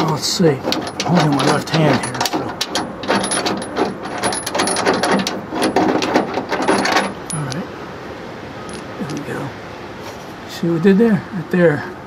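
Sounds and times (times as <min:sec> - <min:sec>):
metal door pillar clicking and rattling: 0:00.0 - 0:07.6.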